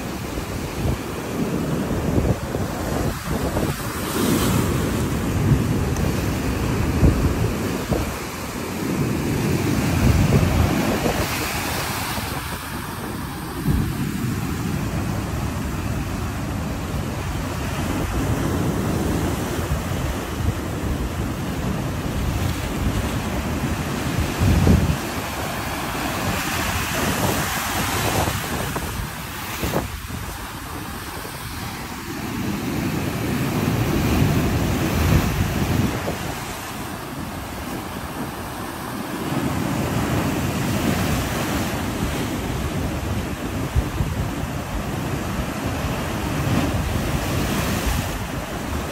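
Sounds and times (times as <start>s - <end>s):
surf breaking over rocks: 0.0s - 48.9s
wind buffeting microphone: 0.0s - 48.9s.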